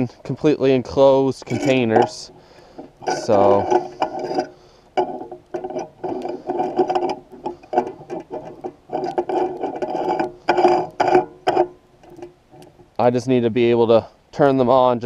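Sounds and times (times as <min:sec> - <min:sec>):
squeaky scrapes with clicks: 0:01.4 - 0:12.8.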